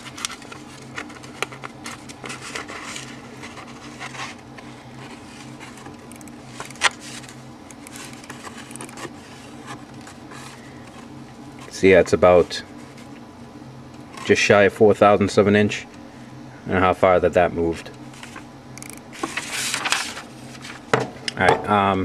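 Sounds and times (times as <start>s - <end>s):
paper rustling: 0.0s - 13.2s, 18.1s - 18.5s, 19.1s - 20.9s
steady low hum: 0.0s - 22.0s
micrometer clicks: 7.6s - 9.1s, 18.7s - 19.1s.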